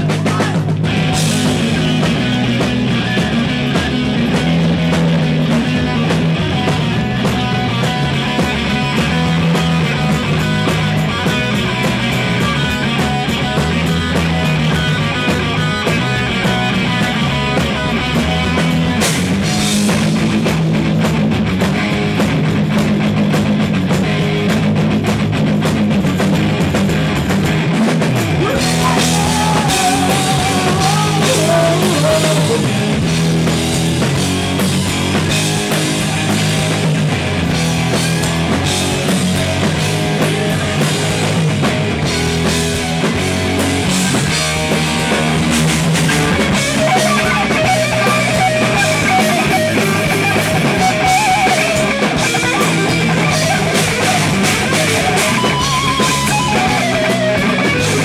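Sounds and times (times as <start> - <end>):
bass guitar: 0.0 - 58.0
drum kit beat: 0.0 - 58.0
electric guitars: 0.0 - 58.0
person singing: 28.4 - 32.8.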